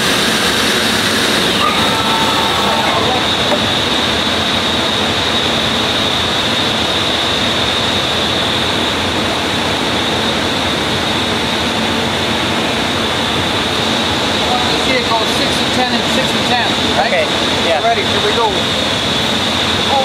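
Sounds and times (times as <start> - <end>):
cnc router machine whining: 0.0 - 8.8.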